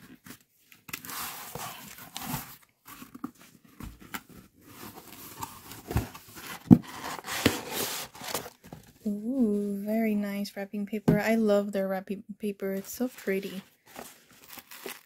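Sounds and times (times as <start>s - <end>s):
cardboard and paper rustling: 0.0s - 9.8s, 12.8s - 15.0s
packing tape peeled and torn: 14.3s - 15.0s.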